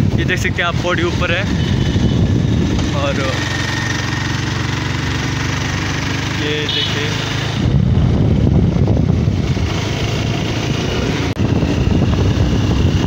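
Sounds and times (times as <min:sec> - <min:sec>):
wind buffeting microphone: 0:00.0 - 0:03.9, 0:07.4 - 0:13.0
motorcycle engine rumble: 0:00.0 - 0:13.0.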